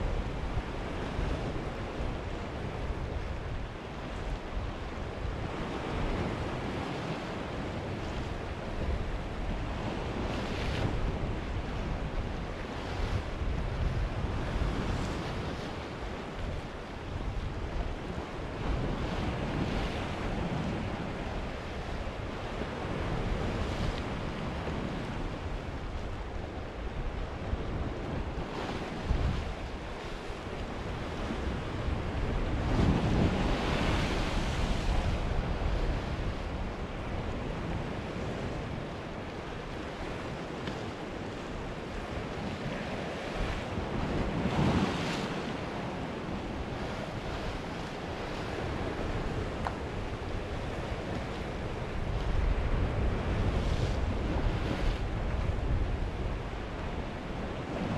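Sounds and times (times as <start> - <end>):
wind rumbling on microphone: 0.0 - 57.9
sea waves breaking on rocks: 17.8 - 57.9.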